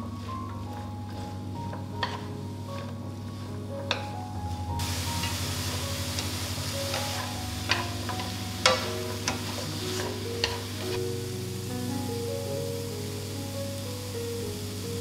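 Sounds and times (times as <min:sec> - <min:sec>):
chopsticks tapping a frying pan: 0:00.0 - 0:11.1
light sizzle: 0:00.0 - 0:15.0.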